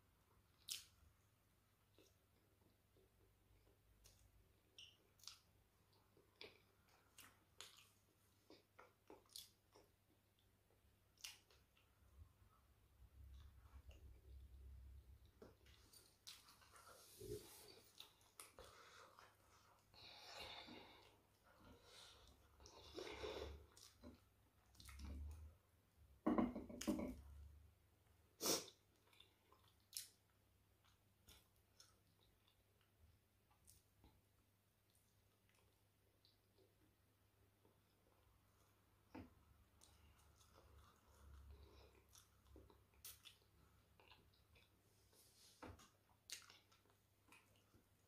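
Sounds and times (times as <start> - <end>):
soft chewing clicks: 1.8 - 12.2, 23.7 - 25.5, 28.9 - 37.0, 37.6 - 48.0
lip smacks: 28.4 - 30.2, 45.8 - 47.7.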